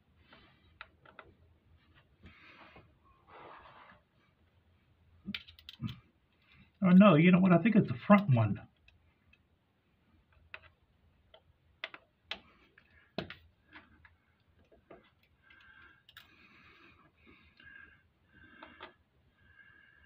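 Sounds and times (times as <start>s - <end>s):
small tools clicking and tapping: 5.3s - 6.0s, 10.3s - 16.3s.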